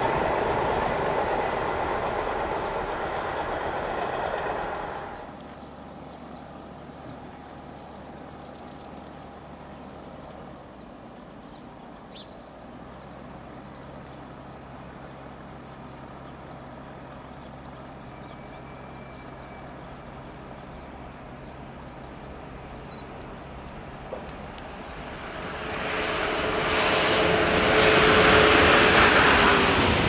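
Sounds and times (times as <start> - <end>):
distant low hum and rumble: 0.0 - 30.0
faint bird chirps: 4.8 - 26.4.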